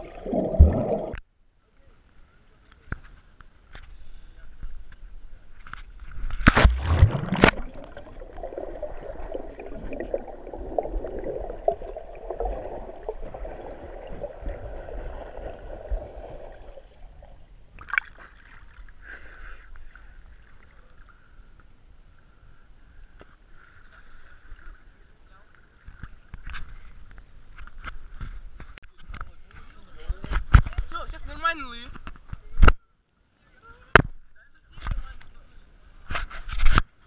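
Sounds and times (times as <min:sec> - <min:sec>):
water splashing: 0:00.0 - 0:01.2, 0:06.1 - 0:19.0.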